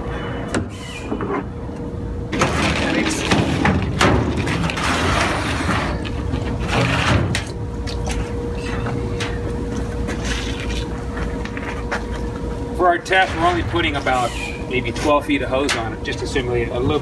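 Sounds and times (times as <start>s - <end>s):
steady hum: 0.0s - 17.0s
hoses knocking and scraping on tank: 2.3s - 12.4s.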